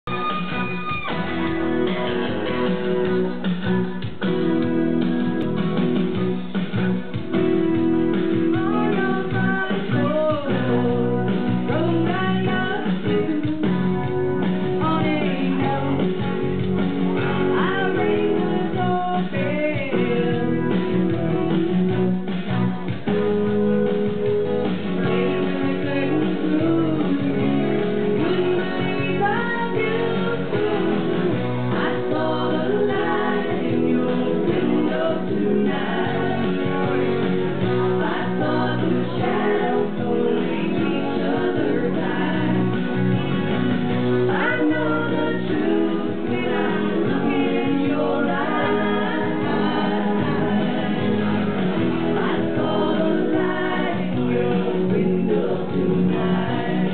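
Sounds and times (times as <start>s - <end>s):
woman singing into microphone: 8.4s - 14.0s, 14.8s - 16.4s, 17.2s - 20.9s, 25.0s - 42.8s, 44.3s - 56.9s.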